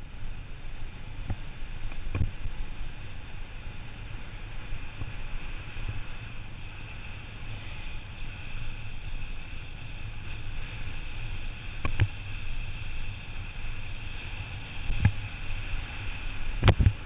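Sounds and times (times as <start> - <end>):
bike tyres rumbling on asphalt: 0.0 - 17.0
wind on microphone: 0.0 - 17.0.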